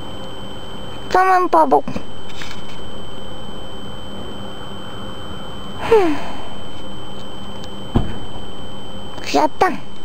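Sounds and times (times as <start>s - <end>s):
high whine: 0.0s - 10.0s.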